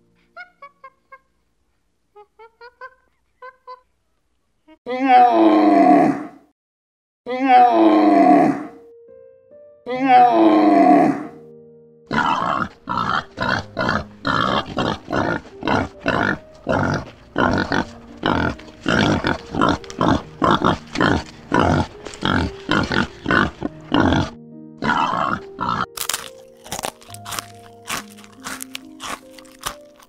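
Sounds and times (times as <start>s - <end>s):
children's music: 11.3s - 30.0s
warthogs grunting: 12.1s - 25.9s
sharp crunching clicks: 25.8s - 30.0s.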